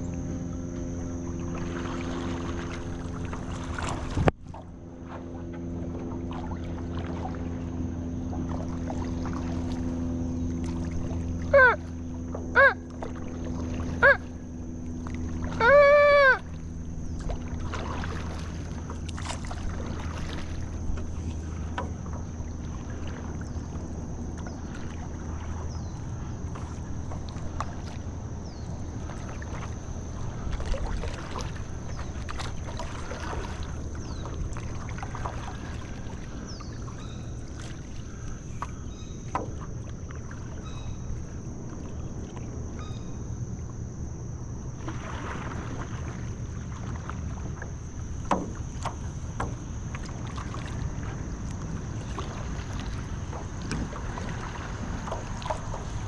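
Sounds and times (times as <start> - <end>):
steady low rumble: 0.0 - 44.8
paddle dipping in water: 0.0 - 56.0
water drips and splashes: 29.0 - 38.7.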